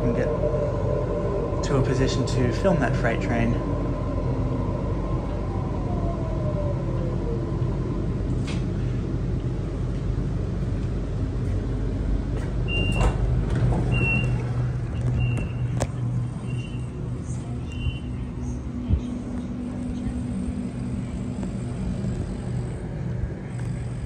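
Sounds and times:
train hum and rumble: 0:00.0 - 0:24.0
sliding doors clicking open: 0:12.3 - 0:16.0
falling motor whine: 0:17.7 - 0:24.0.

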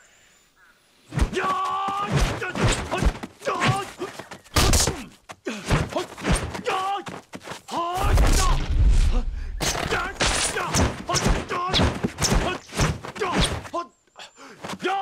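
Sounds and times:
fighters shouting and grunting: 0:01.1 - 0:13.9, 0:14.6 - 0:15.0
punch and kick hits: 0:08.0 - 0:13.6.

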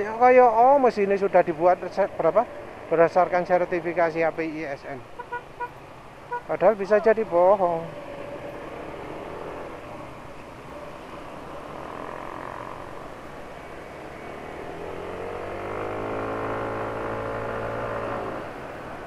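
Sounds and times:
road and wind noise: 0:00.0 - 0:19.0
scooter engine accelerating: 0:11.1 - 0:13.2, 0:13.8 - 0:19.0.

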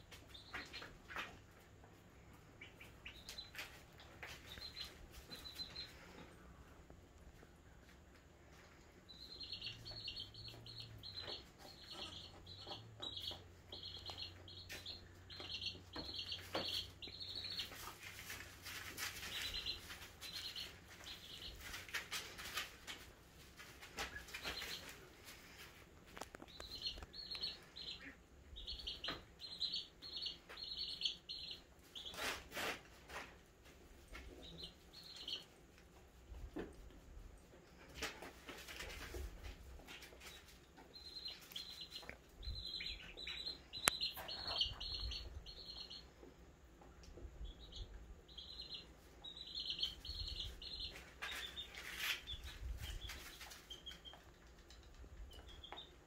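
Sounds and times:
goat kids rustling in shavings: 0:16.2 - 0:27.0.

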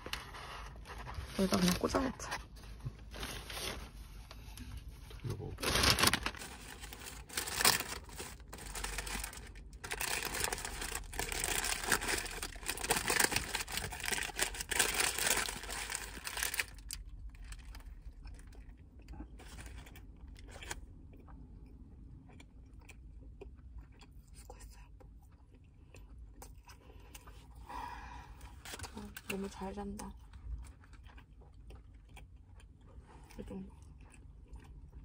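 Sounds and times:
paper bag and wrapper crinkling: 0:03.0 - 0:04.0, 0:05.4 - 0:17.9.

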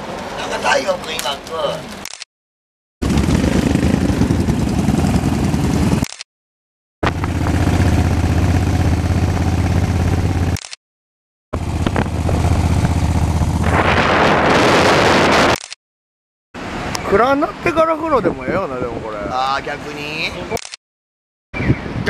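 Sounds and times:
motorcycle engine running: 0:03.0 - 0:06.1, 0:07.0 - 0:10.6, 0:11.6 - 0:14.3.

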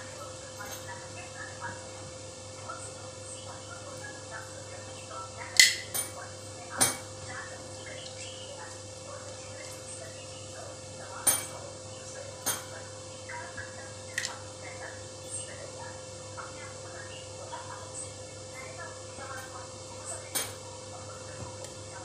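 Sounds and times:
steady hum: 0:00.0 - 0:22.0
metal pot and bowl clinking: 0:11.2 - 0:11.6, 0:20.3 - 0:20.6.

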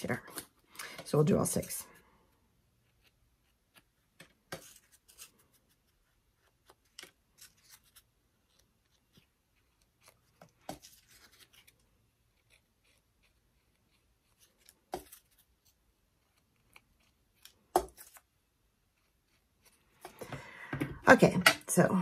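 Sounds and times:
paper rustling: 0:04.2 - 0:13.1.

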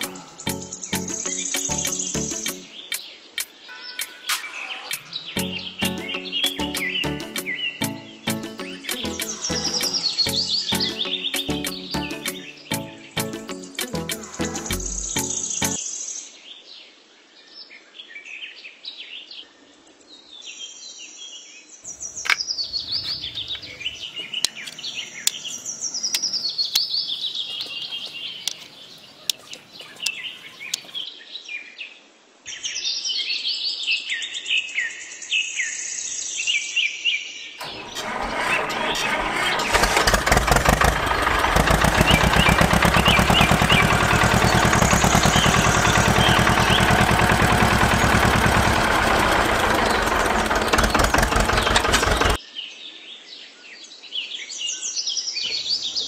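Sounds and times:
birds chirping and calling: 0:00.0 - 0:15.8, 0:21.9 - 0:31.1, 0:37.6 - 0:52.4, 0:55.4 - 0:56.0
tractor engine running: 0:05.4 - 0:15.8, 0:37.6 - 0:52.4.

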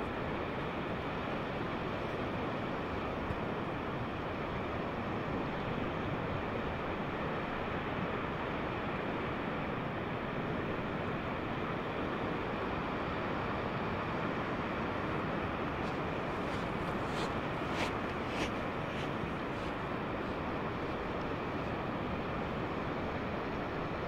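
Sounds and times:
small waves washing onto beach: 0:10.7 - 0:24.0.

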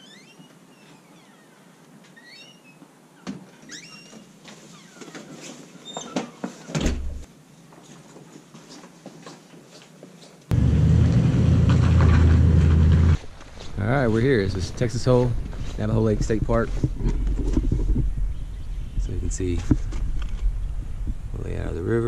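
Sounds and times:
door opening and shutting: 0:03.2 - 0:07.3
loud low rumble: 0:10.5 - 0:13.2.

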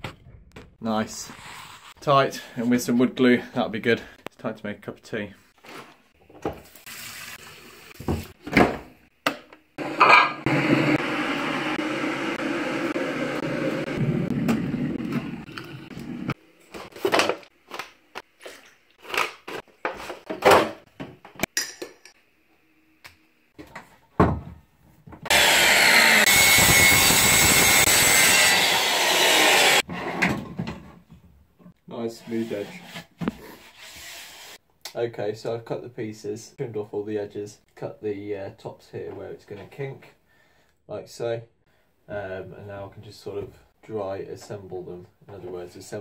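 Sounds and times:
water running from tap: 0:06.6 - 0:08.3
electric saw cutting wood: 0:09.8 - 0:16.4, 0:25.3 - 0:29.8.

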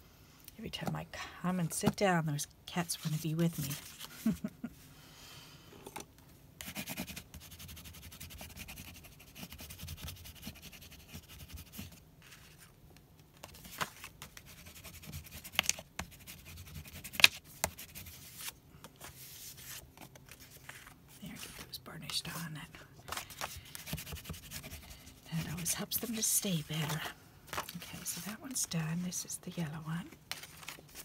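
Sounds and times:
card stock being shuffled: 0:02.9 - 0:04.5, 0:13.4 - 0:14.7, 0:18.0 - 0:22.4, 0:23.0 - 0:28.6, 0:30.1 - 0:31.0
bone folder scraping card: 0:23.1 - 0:24.9.

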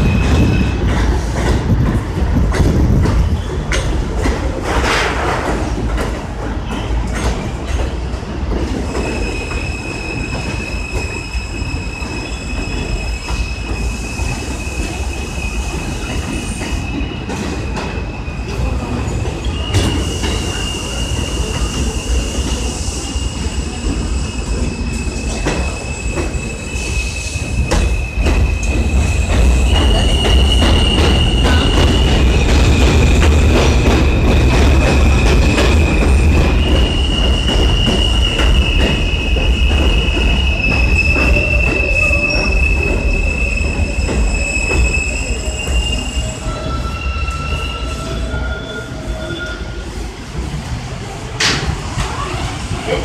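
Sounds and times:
train wheels rumbling on rails: 0:00.0 - 0:53.0
train wheels squealing: 0:08.7 - 0:50.4.

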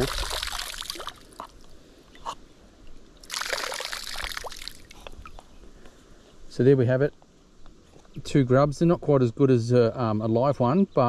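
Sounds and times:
water pouring into creek: 0:00.0 - 0:01.7, 0:03.2 - 0:05.3.

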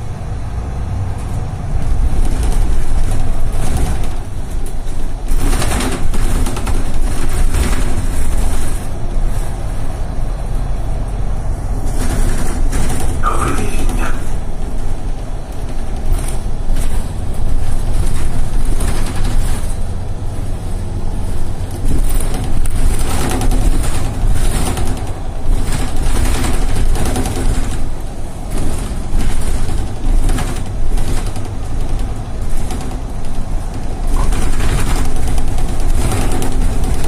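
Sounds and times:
bus engine rumble: 0:00.0 - 0:37.0
tyre and road noise: 0:00.0 - 0:37.0.

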